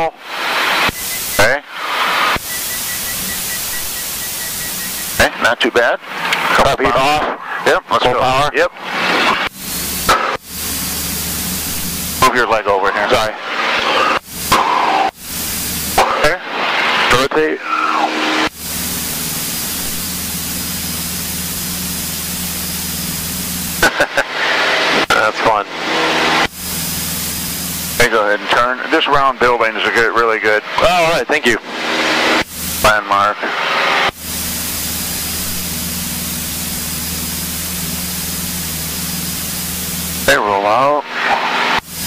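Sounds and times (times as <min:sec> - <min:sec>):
propeller plane engine in cabin: 0:00.0 - 0:06.7, 0:08.7 - 0:29.0, 0:29.7 - 0:42.0
airflow hiss: 0:09.5 - 0:12.3, 0:13.6 - 0:17.1, 0:17.8 - 0:25.1, 0:25.8 - 0:28.1, 0:31.7 - 0:40.4.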